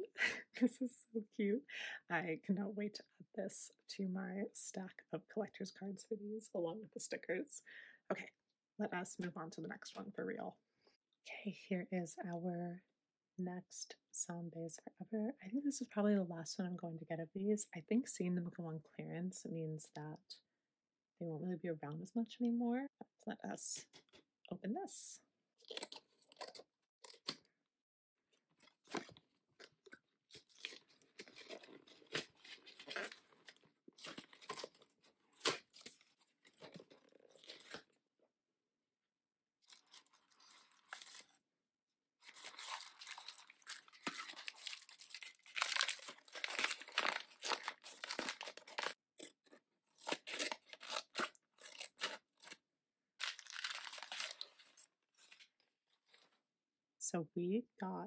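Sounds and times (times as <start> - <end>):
packaging crunching and rustling: 25.6 - 27.4, 28.6 - 37.9, 39.6 - 41.4, 42.2 - 52.6, 53.2 - 56.3
scissors cutting wrapping: 25.6 - 27.4, 30.4 - 37.9, 42.2 - 52.6, 53.2 - 55.4.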